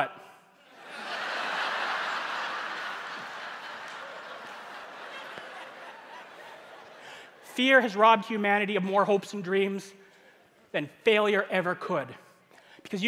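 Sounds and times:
audience laughing: 0.6 - 7.6.

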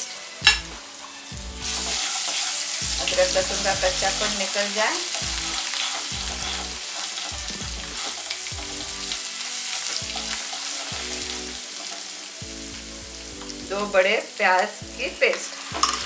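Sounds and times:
paste and spices sizzling in oil: 0.0 - 16.0
wooden spatula stirring: 1.7 - 12.6.

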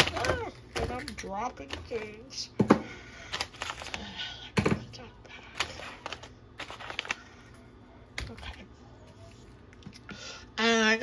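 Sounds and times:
packages knocking on hard surface: 4.5 - 4.9.

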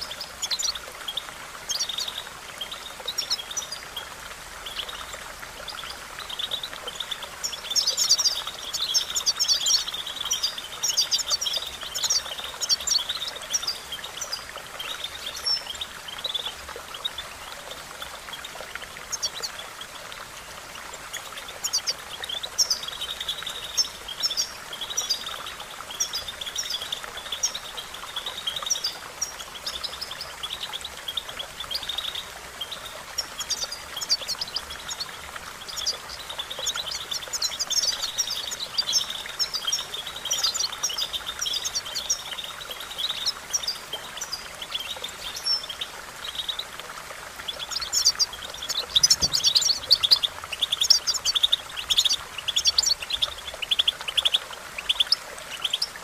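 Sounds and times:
finch twittering song: 47.5 - 56.0.

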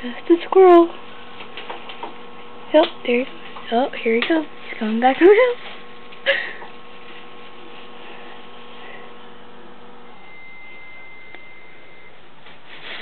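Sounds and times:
faint electrical hum: 0.0 - 13.0
faint high steady tone: 10.0 - 12.3.

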